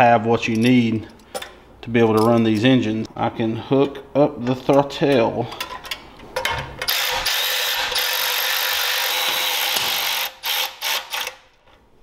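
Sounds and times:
cordless power tool running: 6.9 - 11.3.

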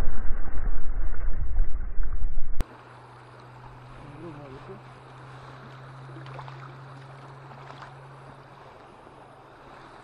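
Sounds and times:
low steady hum: 0.0 - 10.0
river water flowing: 2.6 - 10.0.

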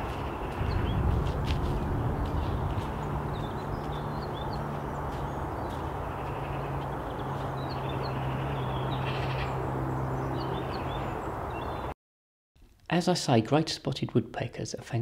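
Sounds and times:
low hum: 0.4 - 11.3
small birds chirping: 1.8 - 11.9.

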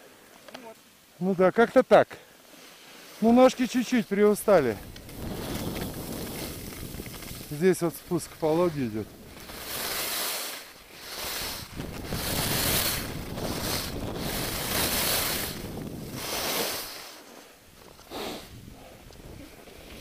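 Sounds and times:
skis hissing over snow: 2.4 - 20.0
wind on microphone: 4.4 - 10.1, 10.8 - 17.0, 17.7 - 20.0.

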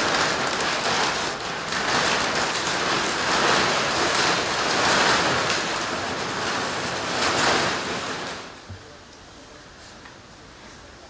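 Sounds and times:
foil bag crinkling and rustling: 0.0 - 8.6.

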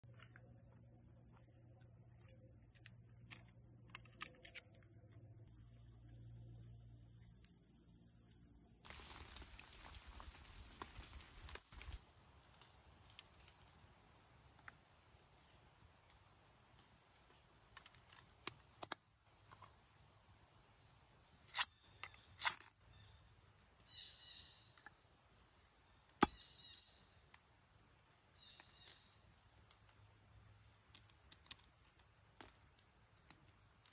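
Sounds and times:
insects buzzing: 0.0 - 18.5.

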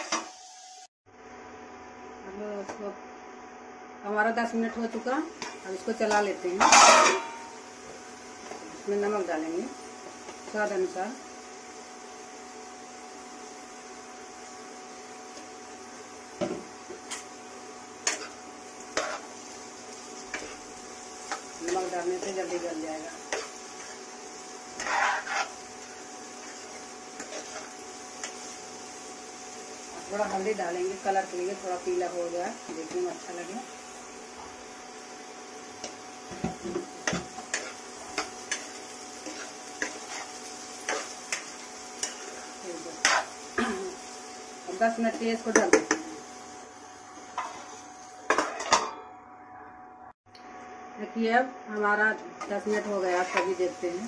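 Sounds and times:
induction cooktop hum: 0.0 - 54.0
spoon scraping and knocking a pan: 6.6 - 7.5, 19.0 - 19.3, 24.7 - 25.6, 35.8 - 42.4, 43.0 - 43.3, 47.3 - 49.0, 52.7 - 53.6
spatula scraping pan: 18.0 - 19.4, 20.1 - 28.6, 35.8 - 43.4, 47.3 - 48.8, 52.4 - 53.7.

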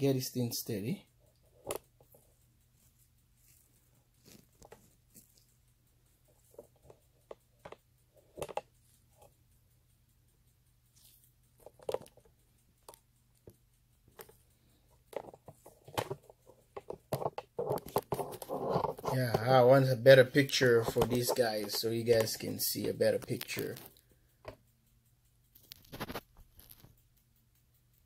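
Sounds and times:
low steady hum: 0.0 - 25.7
camera handling taps and rustles: 16.8 - 19.1.

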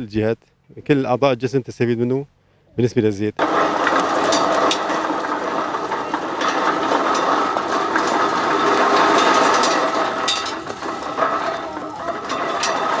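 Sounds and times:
olives rattling down metal grate: 3.4 - 13.0.

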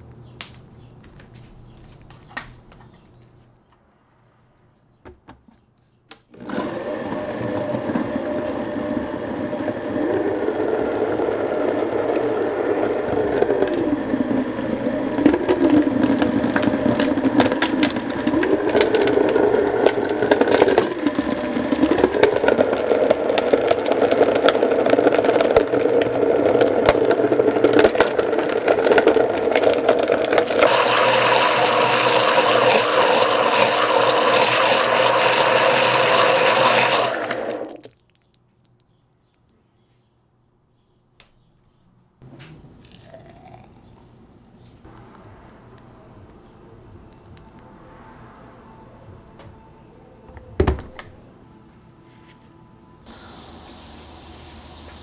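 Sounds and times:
blender motor running: 6.4 - 37.8.

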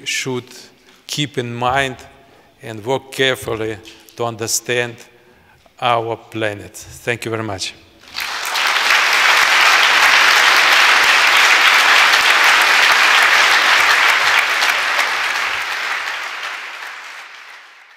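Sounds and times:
audience applauding: 8.0 - 17.9.

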